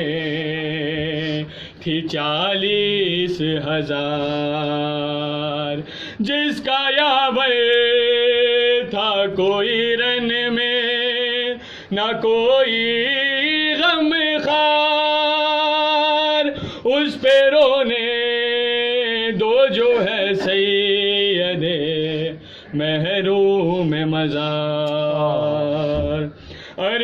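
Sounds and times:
man chanting a lament: 0.0s - 27.0s.

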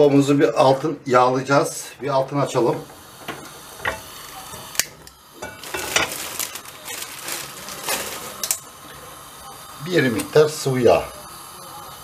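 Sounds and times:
gas flame hissing: 0.0s - 12.0s
gas burner igniter clicks: 2.8s - 5.9s, 10.1s - 10.5s.

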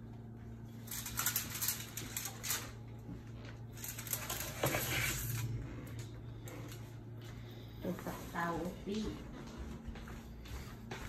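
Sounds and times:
steady low hum: 0.0s - 11.0s
foil crinkling and rustling: 0.7s - 5.6s.

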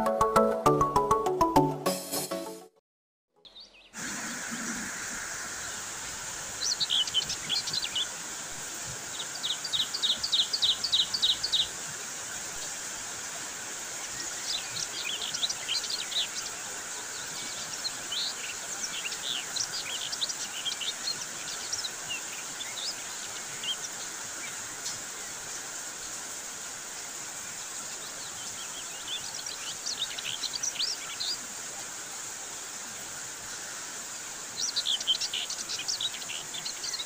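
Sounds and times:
rain on leaves: 4.0s - 37.0s
small birds chirping: 5.6s - 8.2s, 8.8s - 12.7s, 13.8s - 26.3s, 26.9s - 31.5s, 33.5s - 37.0s.

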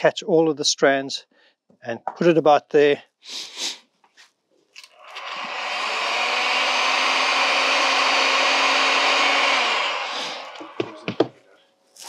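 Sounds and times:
heat gun blowing: 4.8s - 11.0s.

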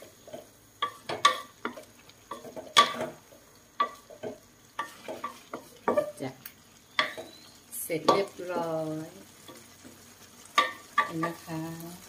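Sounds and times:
food sizzling: 0.0s - 12.0s
spatula scraping metal wok: 3.8s - 6.3s.

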